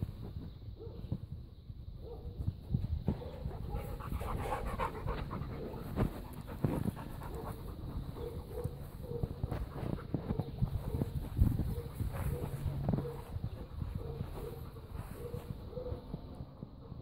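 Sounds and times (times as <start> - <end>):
dog panting: 3.2 - 12.7.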